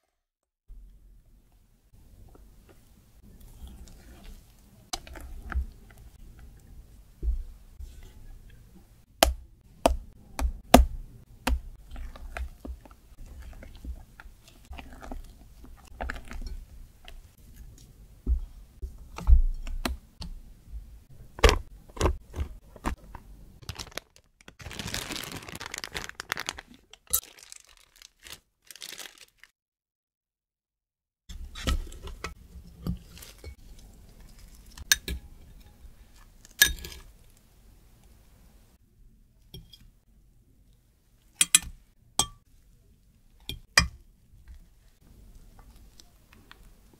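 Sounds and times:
piping bag rustling: 21.5 - 29.5.

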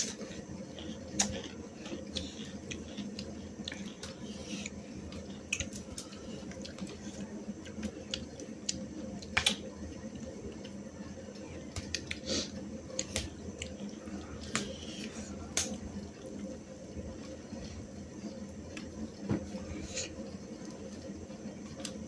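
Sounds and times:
soft chewing: 0.0 - 22.0.

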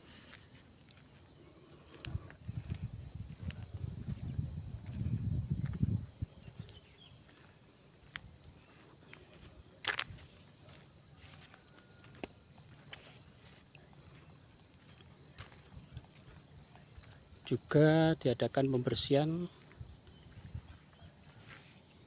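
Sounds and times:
footsteps: 0.0 - 17.2
insects chirring: 0.0 - 22.0.

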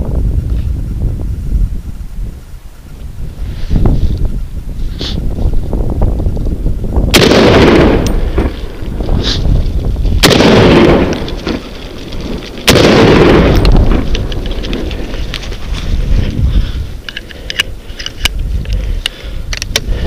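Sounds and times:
rifle shots echoing: 7.1 - 8.8, 10.2 - 15.0.

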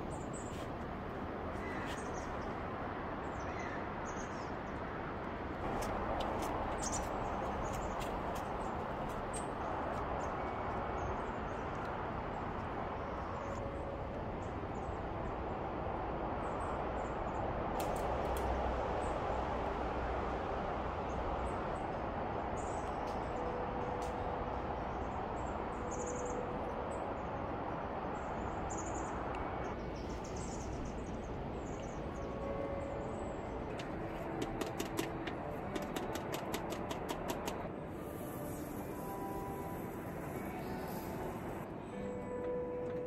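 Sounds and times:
rushing outdoor background noise: 0.0 - 43.0
small birds chirping: 1.5 - 2.6, 5.7 - 12.4.

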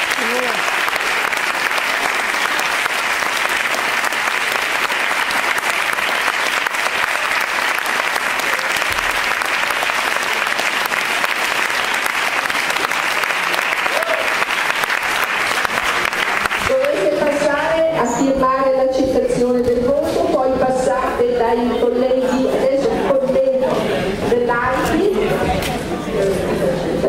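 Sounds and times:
audience applauding: 0.0 - 17.5.

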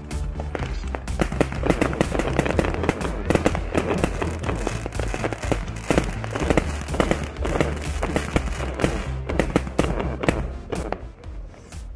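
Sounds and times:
background music with bass: 0.0 - 11.9
fireworks bangs and crackles: 0.0 - 11.9.

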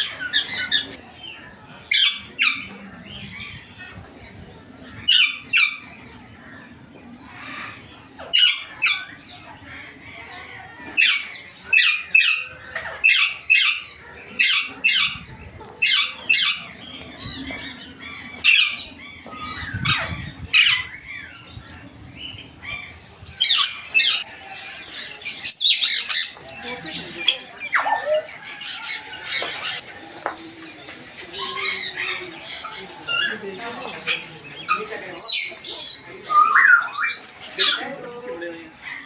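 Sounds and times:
parakeets calling harshly: 11.0 - 26.6.

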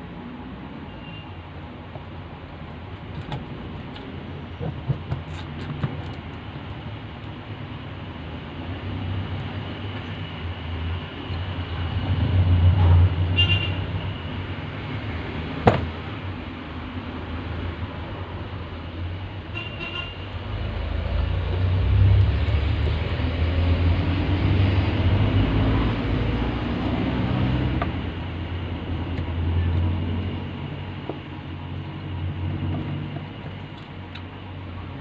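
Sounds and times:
vehicle engine passing: 20.4 - 31.0.

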